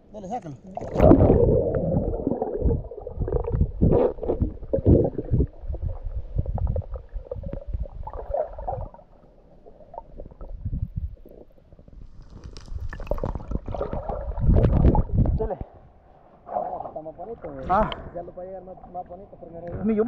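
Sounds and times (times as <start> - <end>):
muffled underwater gurgling: 0.6 - 11.9, 12.9 - 15.4.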